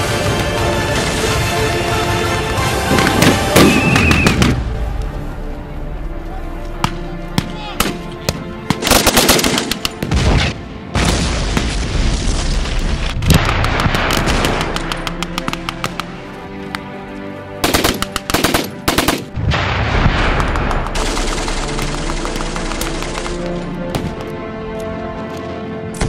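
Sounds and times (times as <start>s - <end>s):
background music: 0.0s - 26.0s
machine gun firing bursts: 8.8s - 9.8s, 17.6s - 19.3s, 20.5s - 23.5s.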